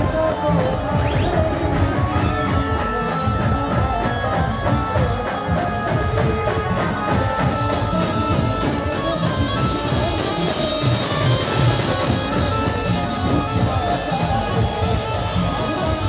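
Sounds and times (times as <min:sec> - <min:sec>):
driving drum beat: 0:00.0 - 0:16.0
loud band music: 0:00.0 - 0:16.0.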